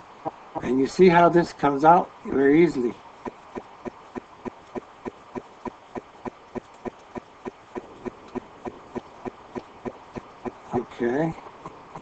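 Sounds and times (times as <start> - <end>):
steady ticking: 3.2 - 12.0.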